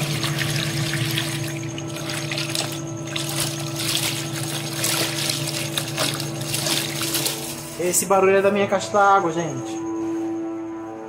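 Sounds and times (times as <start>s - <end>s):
washing machine water sloshing: 0.0s - 8.0s
steady humming from water tank: 0.0s - 10.2s.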